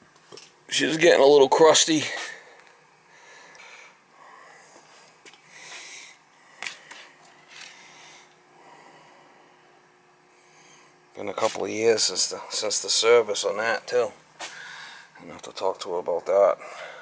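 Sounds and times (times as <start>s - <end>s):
soft breathing: 2.2s - 11.0s, 14.4s - 15.2s.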